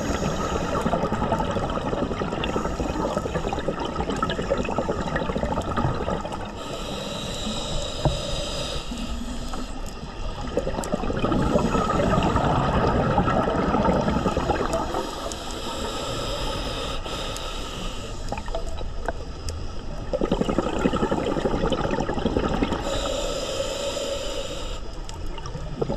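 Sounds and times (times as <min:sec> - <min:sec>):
regulator hissing inhale: 0:00.0 - 0:01.2, 0:02.2 - 0:05.4, 0:06.2 - 0:13.0, 0:13.9 - 0:20.0, 0:22.7 - 0:25.3
exhaled bubbles burbling: 0:00.0 - 0:07.2, 0:09.6 - 0:15.8, 0:19.8 - 0:23.1, 0:25.2 - 0:25.9.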